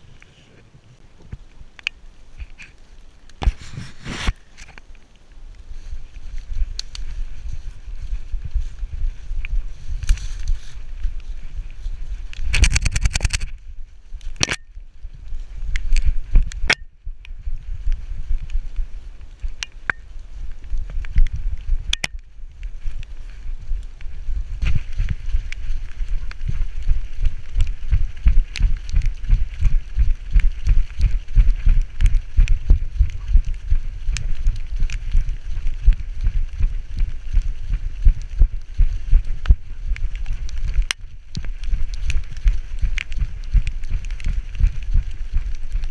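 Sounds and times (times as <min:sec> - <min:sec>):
leaves crackling underfoot: 0:00.0 - 0:45.9
rustles and clicks: 0:00.0 - 0:45.9
steady low rumble: 0:00.0 - 0:45.9
sharp click: 0:12.5 - 0:13.5.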